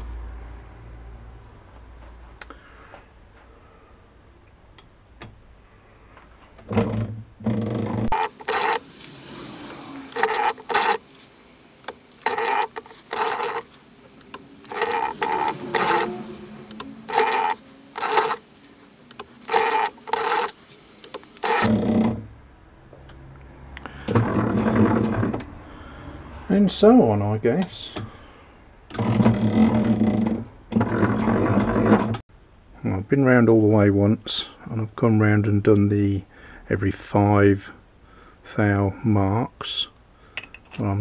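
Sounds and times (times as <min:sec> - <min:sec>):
lathe tool scraping metal: 0:07.5 - 0:11.0, 0:12.2 - 0:13.7, 0:14.6 - 0:18.4, 0:19.5 - 0:20.6.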